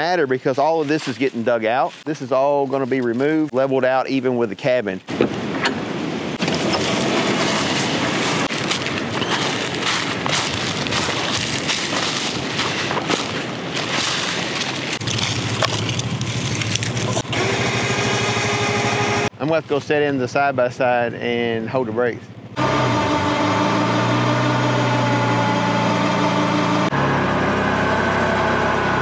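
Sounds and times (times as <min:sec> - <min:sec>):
wind buffeting microphone: 0:05.1 - 0:17.2
vehicle engine drone: 0:06.4 - 0:29.0.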